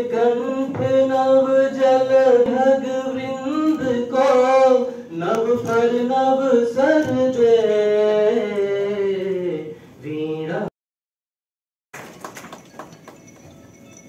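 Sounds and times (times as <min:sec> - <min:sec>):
man singing slow chant: 0:00.0 - 0:10.7.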